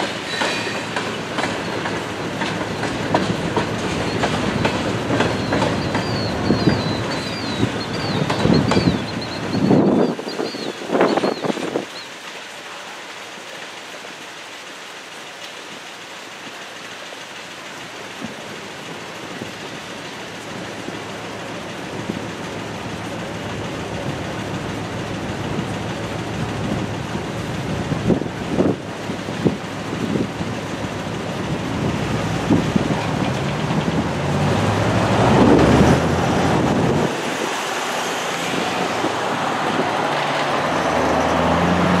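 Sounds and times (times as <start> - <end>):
freight train wheels rolling: 0.0 - 14.2, 15.5 - 42.0
wheels clicking over rail joints: 0.0 - 42.0
low engine hum: 18.2 - 42.0.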